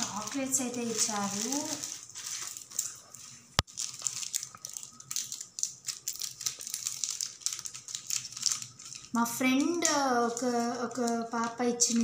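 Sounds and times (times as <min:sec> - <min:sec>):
plastic bag and sweets crinkling: 0:00.0 - 0:12.0.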